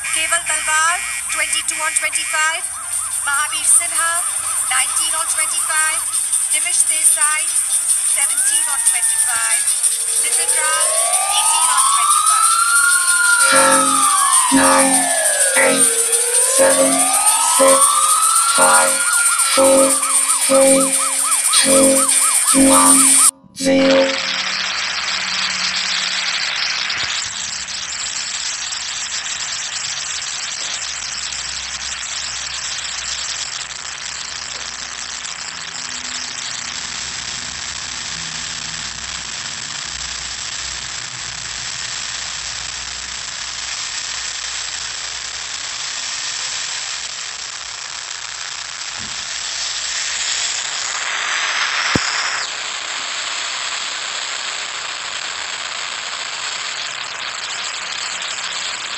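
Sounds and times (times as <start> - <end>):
distorted explosion hiss: 48.3 - 54.4.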